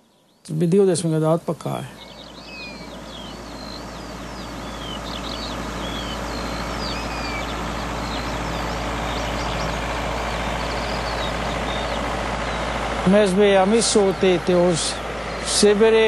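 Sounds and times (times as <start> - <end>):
birds chirping and whistling: 0.0 - 16.0
tractor engine running: 0.7 - 16.0.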